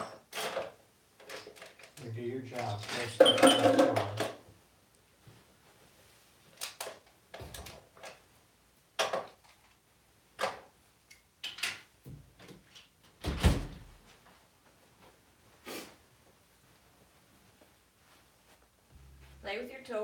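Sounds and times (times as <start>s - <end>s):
plastic toys knocking: 3.2s - 4.4s.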